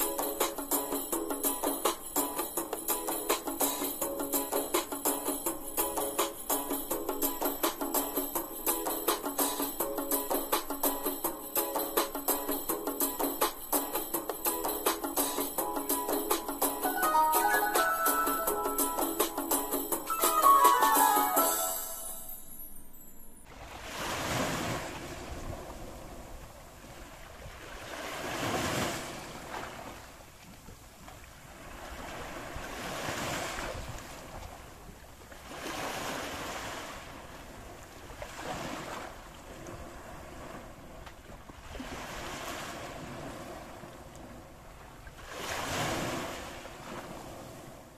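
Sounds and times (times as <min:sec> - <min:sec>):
sea waves washing onto beach: 0:23.5 - 0:30.3, 0:31.2 - 0:47.9.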